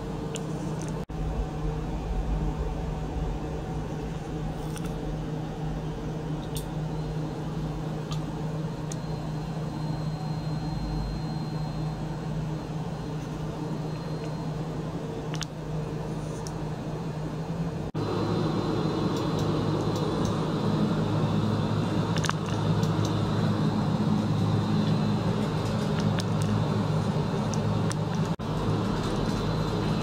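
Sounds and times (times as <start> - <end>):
electric pump humming: 0.0 - 16.1.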